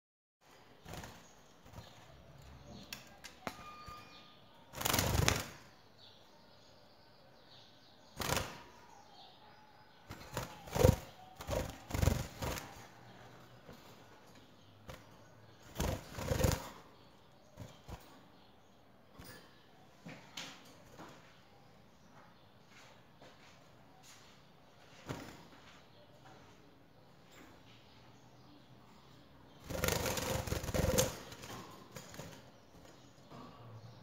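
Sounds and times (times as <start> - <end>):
bird wings flapping: 29.7 - 32.4.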